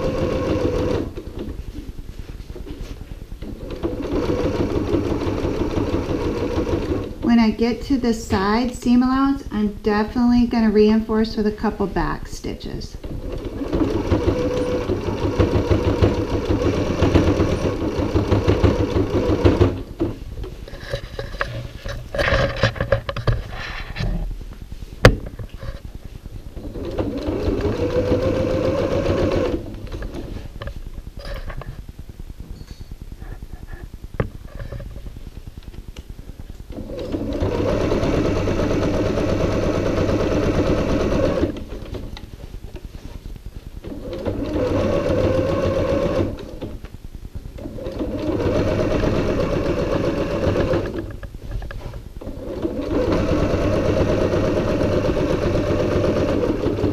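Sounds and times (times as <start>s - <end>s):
sewing machine stitching: 0.0s - 1.5s, 3.4s - 7.9s, 12.9s - 21.6s, 26.6s - 30.4s, 36.7s - 42.1s, 43.8s - 46.8s, 47.6s - 51.2s, 51.8s - 56.9s.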